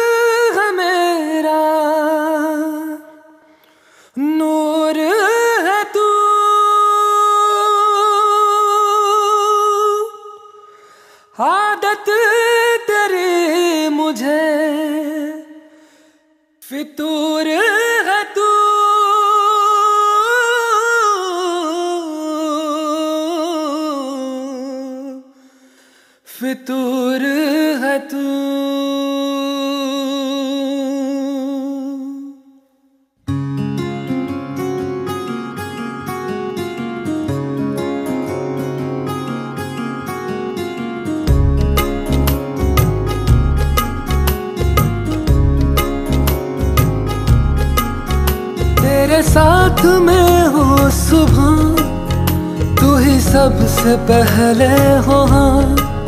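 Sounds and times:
person singing without words: 0.0s - 15.9s, 16.6s - 25.5s, 26.3s - 32.7s, 48.1s - 56.0s.

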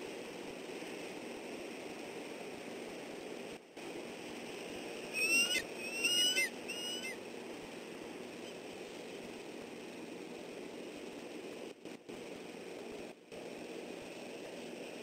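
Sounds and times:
microphone hiss: 0.0s - 15.0s
eagle calling high-pitched piping: 5.1s - 7.2s.

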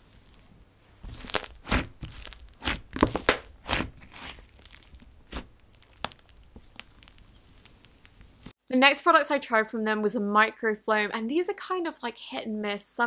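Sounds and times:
slime squelching and popping: 0.1s - 8.5s.

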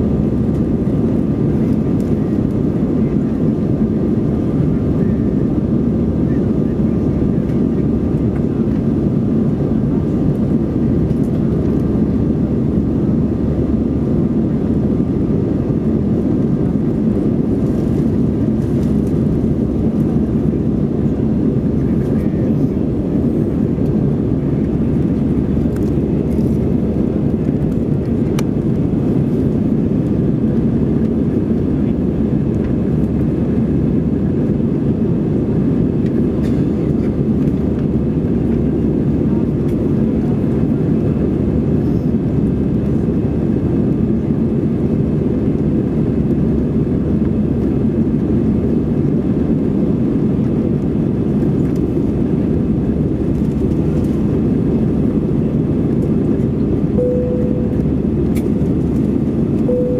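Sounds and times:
jet engines rumbling: 0.0s - 59.9s
faint steady hum: 56.9s - 59.9s.

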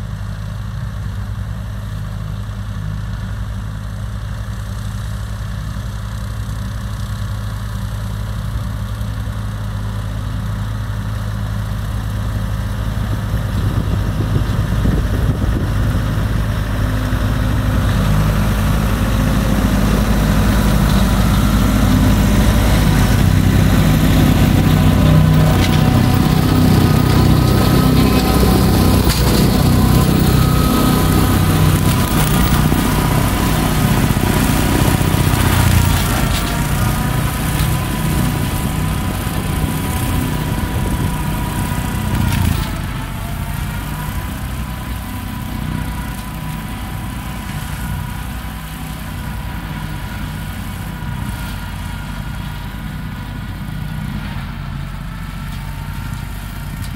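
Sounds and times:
tractor engine running: 0.0s - 56.9s
cutter drive whine: 19.6s - 46.5s.

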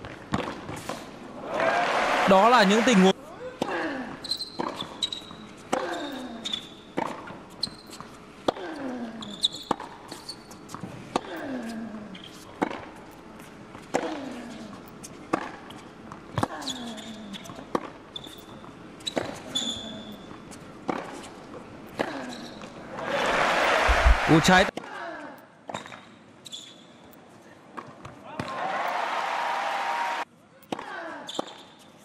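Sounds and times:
shoe squeaks: 4.2s - 6.9s, 7.5s - 8.2s, 9.2s - 10.8s, 12.2s - 12.5s, 16.6s - 20.5s, 22.1s - 22.8s, 25.7s - 27.2s, 31.3s - 32.0s.

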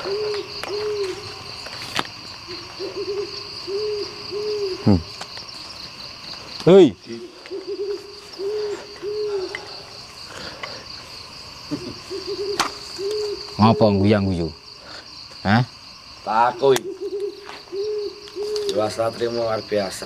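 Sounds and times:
owl hooting: 0.0s - 1.6s, 2.5s - 5.2s, 7.0s - 10.1s, 11.7s - 14.3s, 16.5s - 19.4s
high insect drone: 0.0s - 20.0s.

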